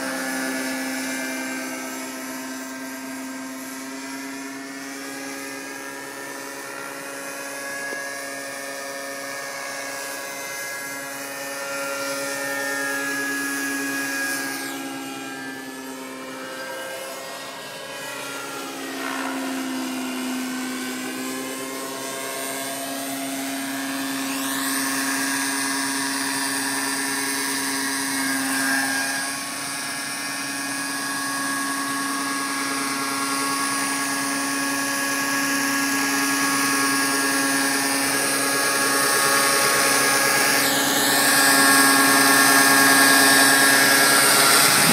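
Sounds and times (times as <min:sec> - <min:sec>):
model helicopter whine: 0:00.0 - 0:44.9.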